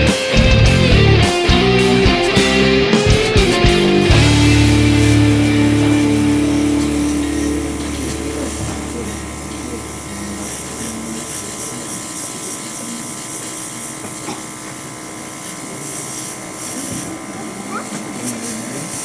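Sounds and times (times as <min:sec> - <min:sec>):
background music: 0:00.0 - 0:10.1
airbrush spraying in hissing bursts: 0:00.7 - 0:19.0
distant chatter of busy hall: 0:05.0 - 0:19.0.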